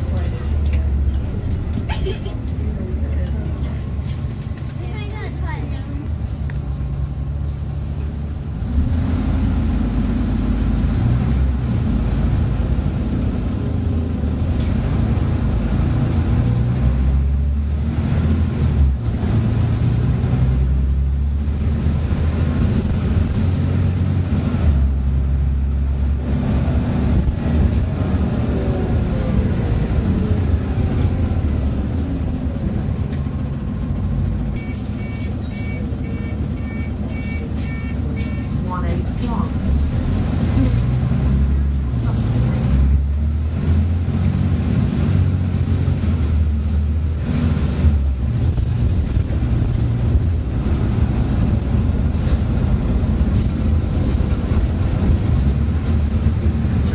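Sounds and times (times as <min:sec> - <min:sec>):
bus diesel engine accelerating: 0:00.0 - 0:56.9
short electronic beeps: 0:34.6 - 0:38.6.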